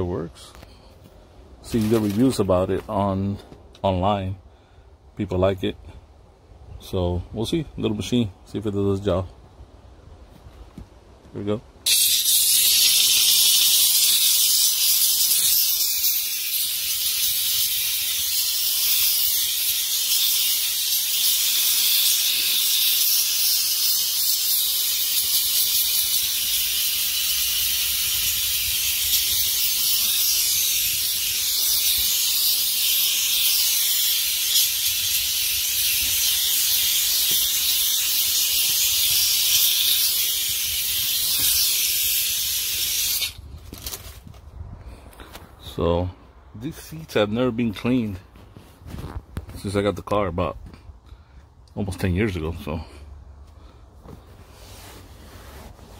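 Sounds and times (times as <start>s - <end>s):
steam cleaner hissing: 11.9s - 43.4s.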